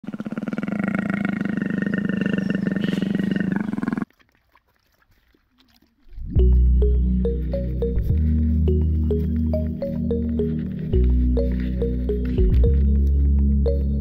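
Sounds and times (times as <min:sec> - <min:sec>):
big cat growling: 0:00.0 - 0:04.1
music with heavy bass: 0:06.4 - 0:14.0.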